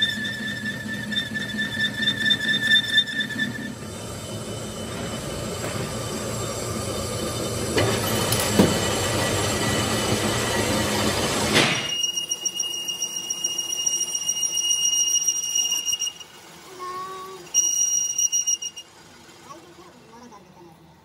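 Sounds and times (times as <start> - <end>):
boring tool squealing: 0.0 - 5.4, 11.5 - 16.7, 17.3 - 18.9
lathe running: 0.0 - 21.0.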